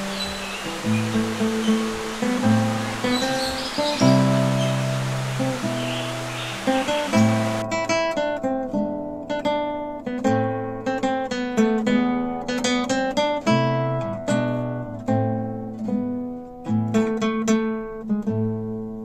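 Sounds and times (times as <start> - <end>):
acoustic guitar strumming: 0.0 - 18.2.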